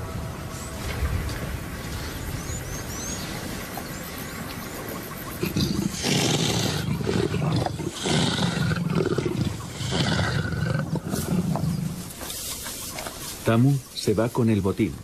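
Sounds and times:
big cat growling: 5.2 - 12.2.

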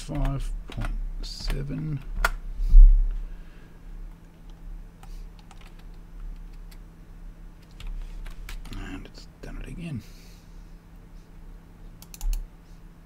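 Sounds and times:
low electrical hum: 0.0 - 13.0
keyboard and mouse clicks: 4.1 - 6.8, 12.0 - 12.4.

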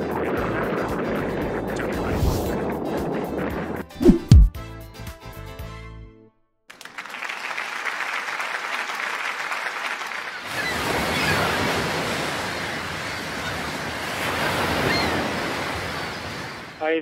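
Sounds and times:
wind: 7.9 - 17.0
ocean surf washing on shore: 10.4 - 17.0.

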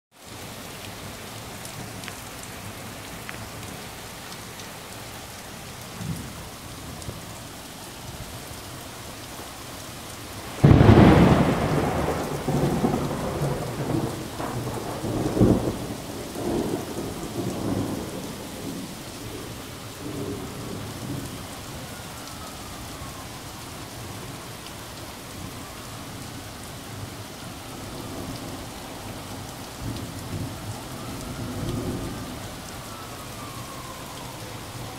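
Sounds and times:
rain pouring onto pavement and cars: 0.1 - 34.9
thunderclap rumbling: 10.4 - 18.8.

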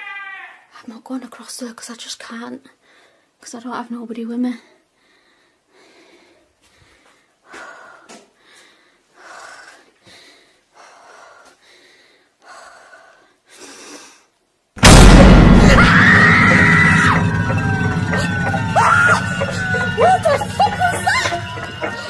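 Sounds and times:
person breathing hard: 4.8 - 14.3
loud blast with rumble: 14.8 - 22.0
wailing tone: 14.8 - 22.0.

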